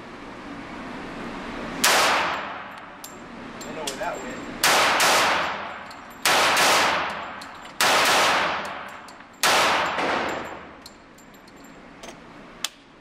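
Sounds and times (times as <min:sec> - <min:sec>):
pistol shots echoing indoors: 0:01.8 - 0:02.7, 0:04.6 - 0:10.7.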